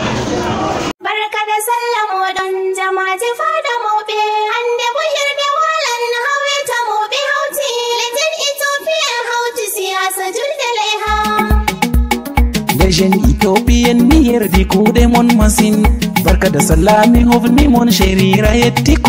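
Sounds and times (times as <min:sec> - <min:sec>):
high-pitched voice singing: 0:01.0 - 0:11.8.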